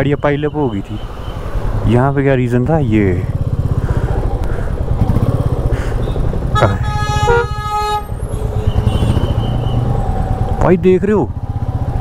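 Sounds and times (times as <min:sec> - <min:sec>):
motorcycle engine idling: 0:02.8 - 0:12.0
vehicle horn honking: 0:06.0 - 0:09.8.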